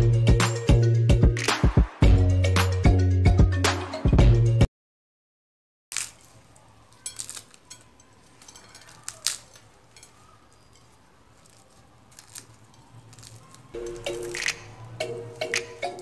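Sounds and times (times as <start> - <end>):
flaky pastry crackling: 5.9 - 16.0.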